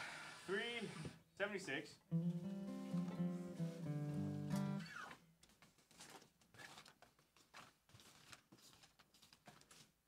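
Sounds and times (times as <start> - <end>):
acoustic guitar and violin chord: 2.1 - 4.8.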